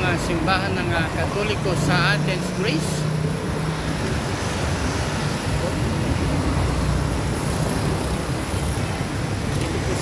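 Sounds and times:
cars and scooters passing: 0.0 - 10.0
low rumble of engines and tyres: 0.0 - 10.0.

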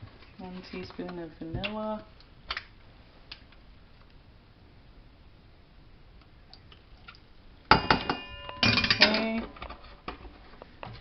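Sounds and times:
utensil clattering on metal bowl: 7.7 - 9.6.

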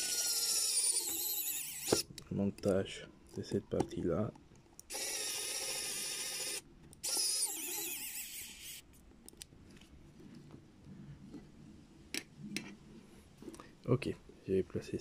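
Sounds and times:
electric screwdriver motor whine: 0.0 - 2.0, 4.9 - 8.8.

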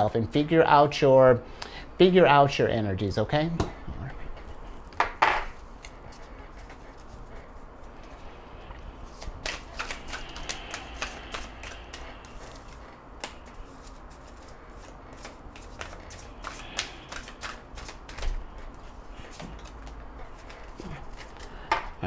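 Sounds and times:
cards shuffled by hand: 9.0 - 21.5.

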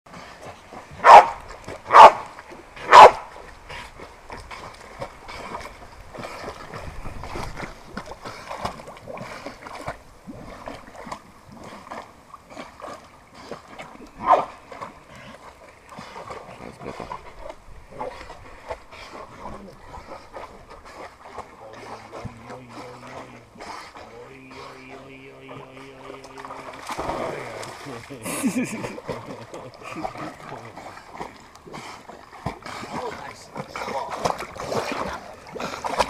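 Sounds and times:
water sloshing and splashing: 0.1 - 36.0
dog barking: 1.0 - 2.2, 2.9 - 3.2, 14.2 - 14.5.

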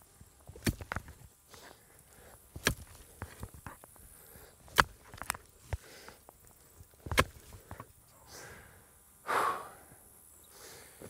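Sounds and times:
pickaxe striking dirt: 0.0 - 3.9, 4.6 - 6.2, 6.8 - 7.9.

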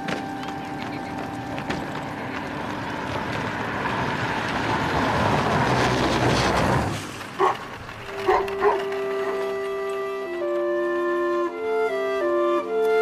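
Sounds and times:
car passing by: 0.5 - 10.0.

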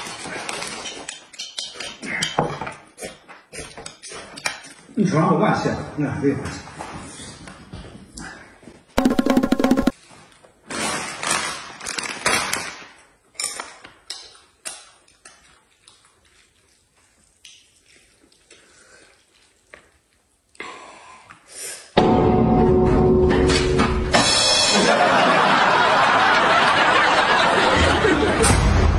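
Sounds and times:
loud music: 9.0 - 9.9.

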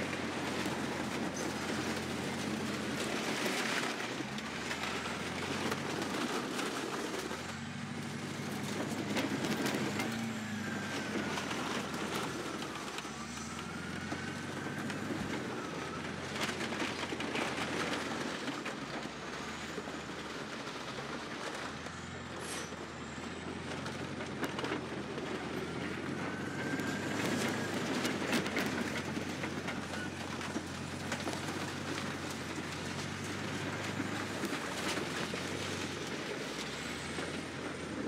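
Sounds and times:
bulldozer diesel engine: 0.0 - 38.0
plastic and metal crunching: 23.6 - 38.0.

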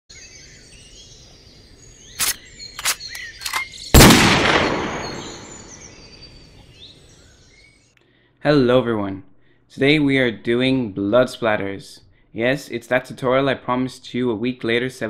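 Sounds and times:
birds singing: 0.1 - 8.4
sharp clicks: 2.2 - 5.4
loud bang: 4.0 - 5.8.

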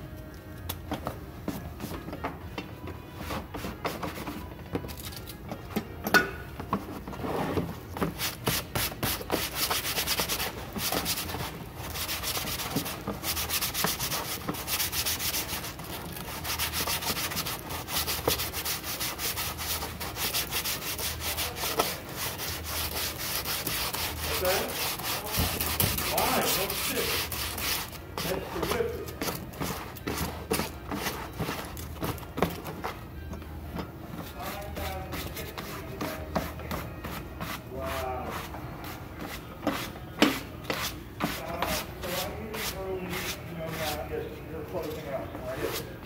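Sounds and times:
hand rubbing felt hat: 6.8 - 33.0.

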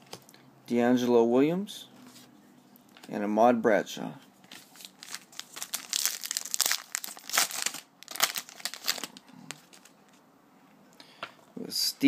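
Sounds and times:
card pack wrapper crinkling: 4.5 - 10.2.

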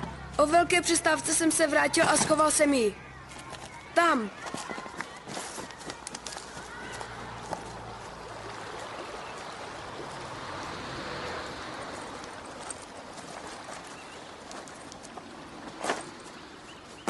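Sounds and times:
flowing river water: 5.2 - 17.0.

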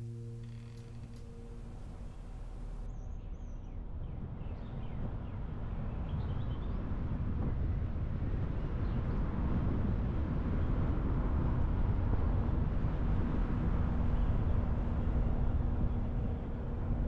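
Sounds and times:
faint steady hum: 0.0 - 2.9.

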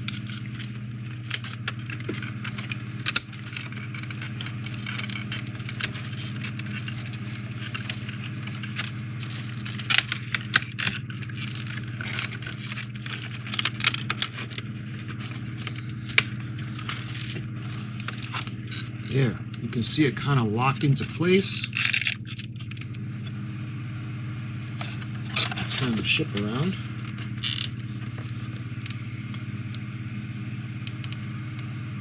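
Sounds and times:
puzzle pieces rustling and scraping: 0.0 - 18.9, 20.8 - 22.9, 24.8 - 29.0
steady low hum: 0.0 - 32.0.

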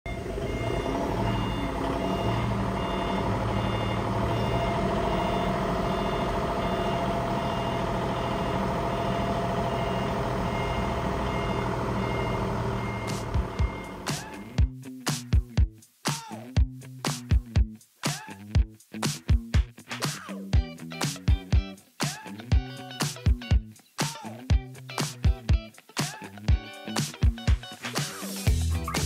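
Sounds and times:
forklift diesel engine running: 0.1 - 14.6
warning beeper: 0.1 - 14.6.

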